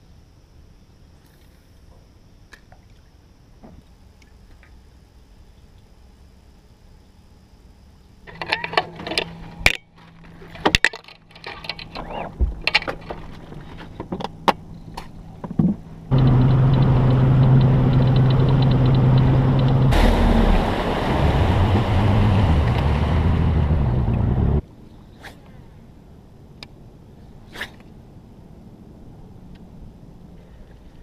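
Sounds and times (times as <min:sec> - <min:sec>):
outboard motor running: 0:16.1 - 0:24.6.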